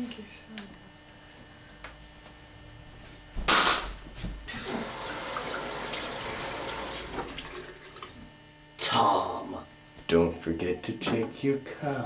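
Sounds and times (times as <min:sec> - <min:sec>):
water running: 0:04.5 - 0:08.3.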